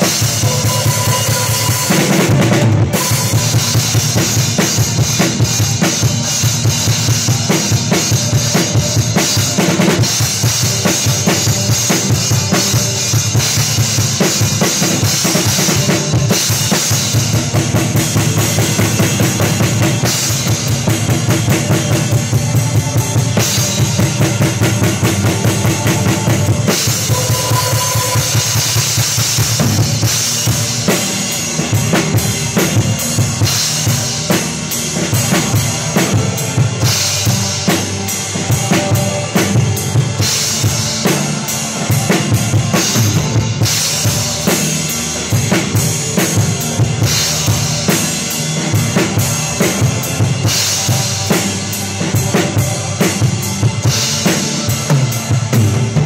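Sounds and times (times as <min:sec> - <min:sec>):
band music: 0:00.0 - 0:56.0
cymbals: 0:00.0 - 0:56.0.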